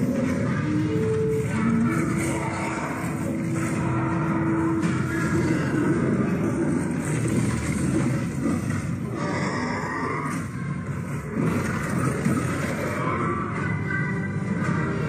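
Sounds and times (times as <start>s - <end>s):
creature growls: 2.1s - 10.6s.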